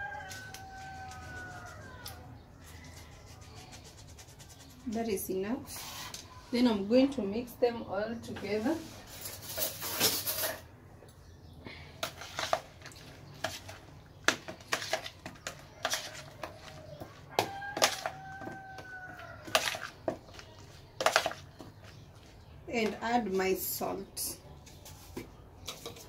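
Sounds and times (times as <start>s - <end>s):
salad mixed in plastic bowl: 12.0s - 23.4s.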